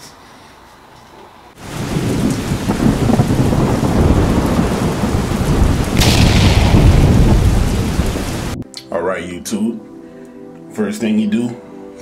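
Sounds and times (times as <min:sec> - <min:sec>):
heavy rain hiss: 0:01.6 - 0:08.6
rolling thunder: 0:01.6 - 0:08.6.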